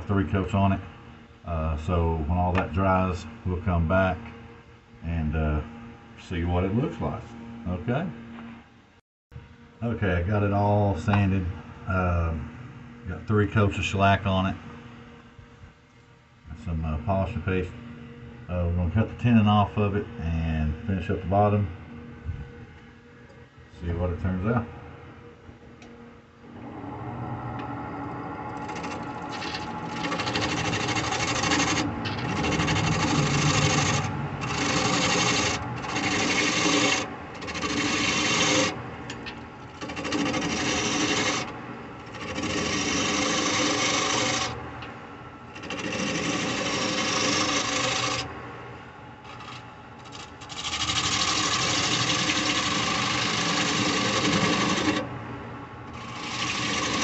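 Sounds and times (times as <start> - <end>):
wood lathe running: 28.4 - 44.6, 45.5 - 48.3, 49.2 - 55.1, 55.9 - 57.0
gouge cutting wood: 28.6 - 38.8, 39.7 - 44.6, 45.5 - 48.3, 49.2 - 55.1, 55.9 - 57.0.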